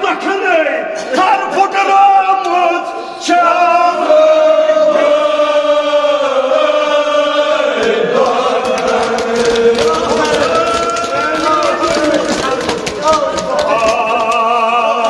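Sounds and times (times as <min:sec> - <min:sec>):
group of men chanting: 0:03.2 - 0:12.7.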